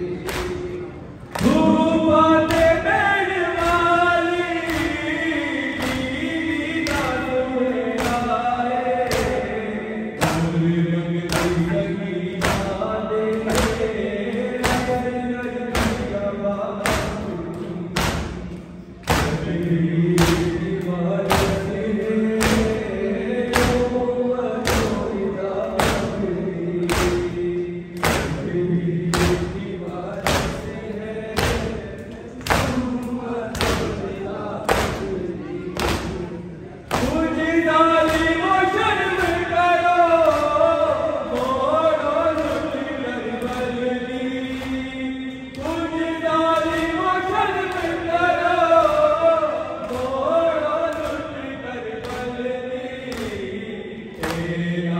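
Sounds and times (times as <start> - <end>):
crowd slapping chests in unison: 0.0 - 54.9
many voices chanting a lament: 0.0 - 54.9.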